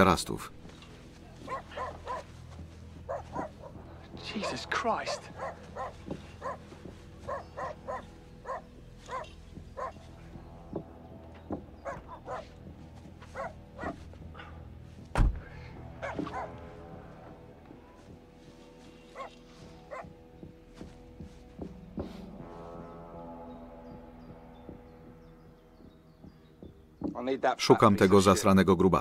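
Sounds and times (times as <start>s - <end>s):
music with low drone: 0.0s - 29.0s
dog yelping barks: 1.5s - 2.3s, 3.1s - 3.7s, 5.4s - 6.6s, 7.3s - 10.0s, 11.8s - 12.5s, 13.4s - 14.0s, 16.0s - 16.6s, 19.2s - 20.1s
heavy thump: 15.1s - 15.5s.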